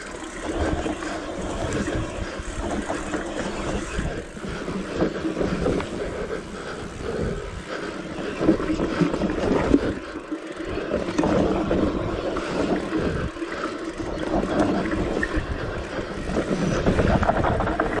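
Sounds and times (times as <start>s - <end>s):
bike rattling over bumps: 0.0s - 18.0s
tyres on loose dirt: 0.0s - 18.0s
wind rushing over microphone: 14.0s - 18.0s.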